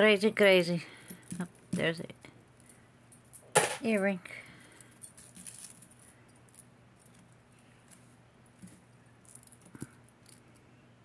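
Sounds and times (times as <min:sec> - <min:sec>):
low steady hum: 0:00.0 - 0:11.0
jewelry chains and beads clinking: 0:02.6 - 0:10.6.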